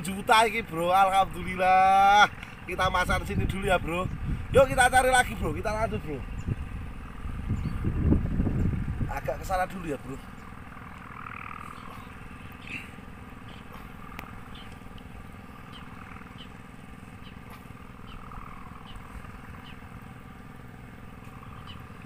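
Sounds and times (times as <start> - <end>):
wind buffeting microphone: 2.6 - 10.7
faint high ticks: 13.5 - 15.1.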